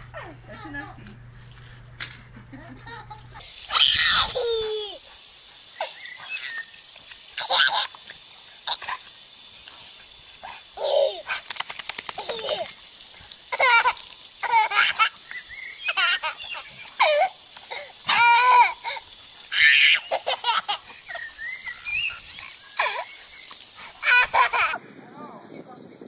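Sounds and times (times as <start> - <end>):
steady high hiss: 3.0 - 24.8
toddler laughing and squealing: 3.7 - 5.1, 5.8 - 6.8, 7.4 - 8.0, 10.4 - 11.4, 12.2 - 12.8, 13.5 - 24.8.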